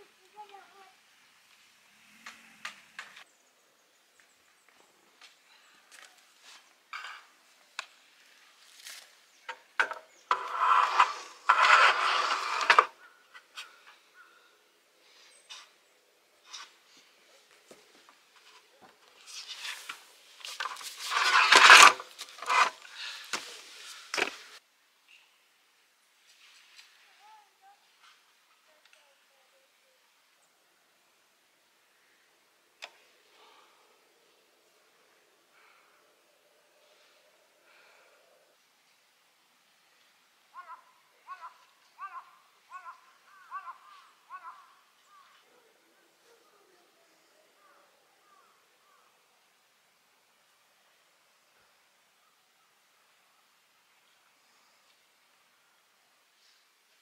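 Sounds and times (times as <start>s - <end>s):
crow cawing: 40.5s - 45.4s, 47.6s - 49.1s.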